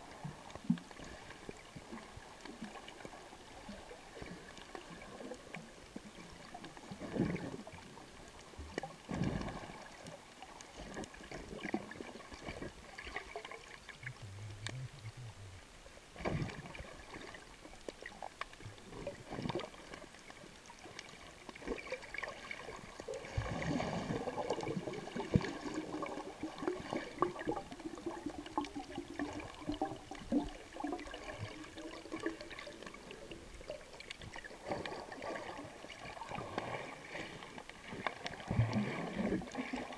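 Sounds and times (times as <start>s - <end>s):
water bubbling underwater: 0.0s - 39.9s
clicks: 14.0s - 15.2s.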